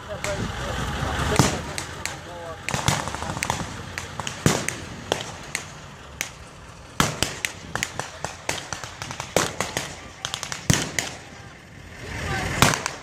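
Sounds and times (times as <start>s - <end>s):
blank gunshots: 1.4s - 6.4s, 7.0s - 11.3s, 12.5s - 13.0s.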